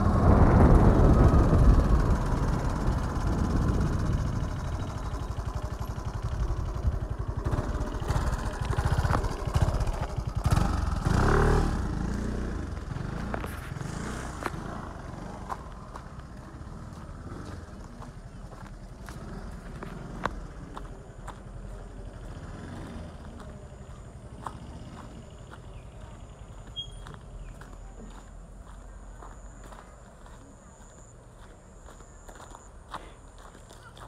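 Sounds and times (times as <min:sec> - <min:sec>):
motorcycle engine running: 0:00.0 - 0:32.6.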